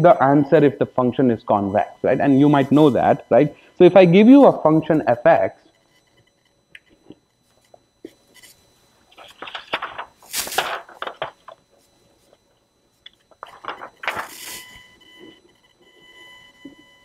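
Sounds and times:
paper rustling and sliding: 0:09.2 - 0:11.5, 0:13.4 - 0:14.6.

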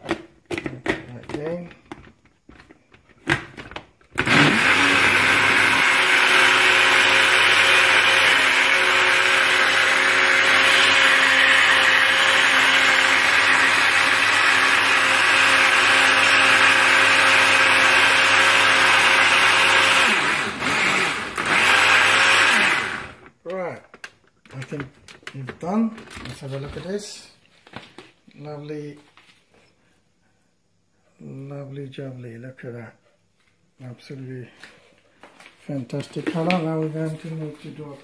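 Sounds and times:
blender running: 0:04.2 - 0:23.3.

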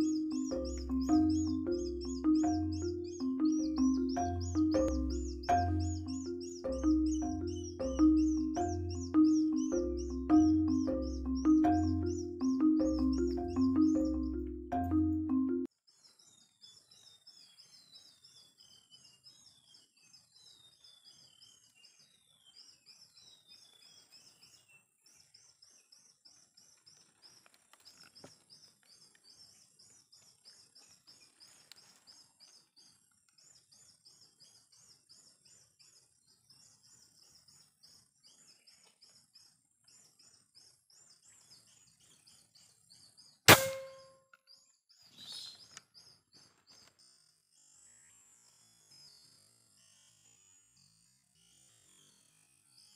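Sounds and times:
air rifle firing: 0:43.5 - 0:44.1.

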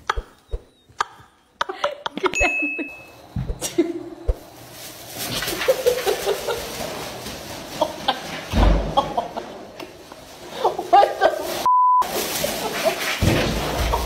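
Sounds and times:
censor bleep: 0:11.7 - 0:12.0.

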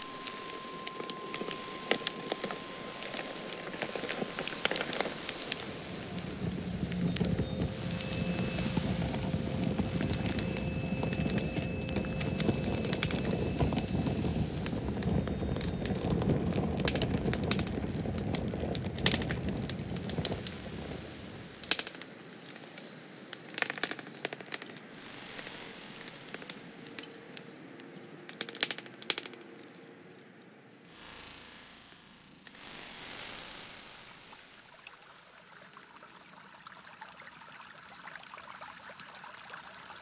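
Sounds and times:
low rushing noise: 0:00.0 - 0:21.6
wood fire crackling and popping: 0:00.0 - 0:33.0.

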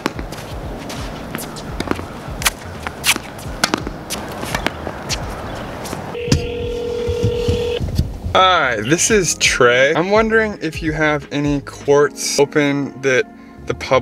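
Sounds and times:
tennis balls struck with rackets: 0:00.0 - 0:08.1
shoe scuffs: 0:00.0 - 0:08.3
steady telephone tone: 0:06.1 - 0:07.8.

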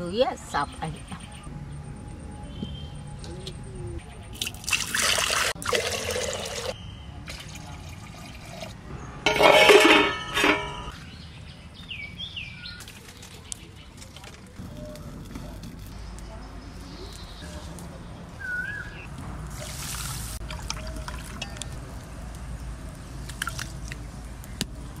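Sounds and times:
water poured into pot: 0:04.4 - 0:08.8, 0:19.5 - 0:21.8.

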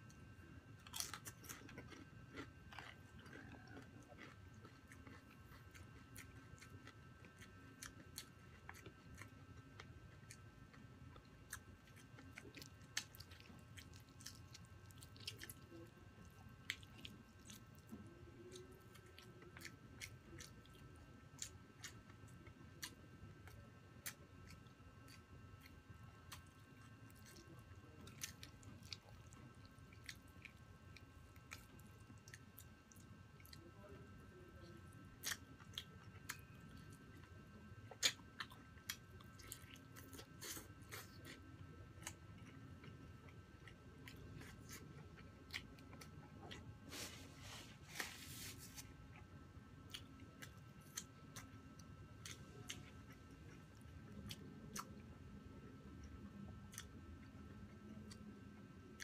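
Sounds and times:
sharp chewing snaps: 0:00.8 - 0:10.4, 0:35.2 - 0:36.5, 0:37.9 - 0:41.4, 0:56.7 - 0:57.0.

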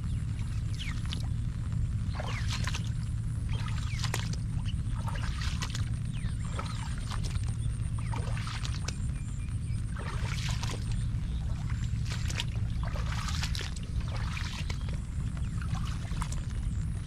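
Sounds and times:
steady low rumble: 0:00.0 - 0:17.0
splashy footsteps on wet road: 0:11.6 - 0:16.5.

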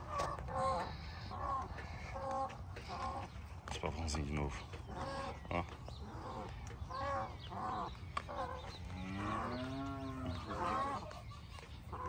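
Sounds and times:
farmyard fowl calls: 0:00.0 - 0:12.0
cow mooing: 0:08.8 - 0:10.6.

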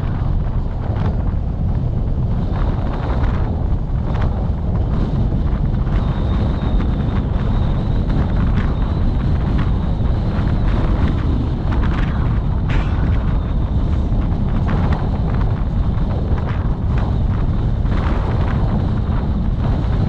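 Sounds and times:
vehicle rumble on road: 0:00.0 - 0:20.0
wind buffeting microphone: 0:00.0 - 0:20.0.

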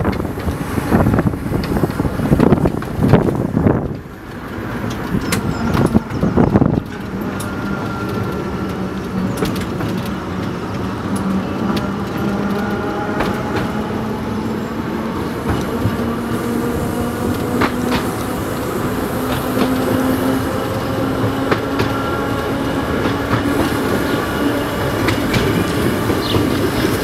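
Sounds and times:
tram running rumble: 0:00.0 - 0:27.0
wheels clicking on rails: 0:00.0 - 0:27.0.

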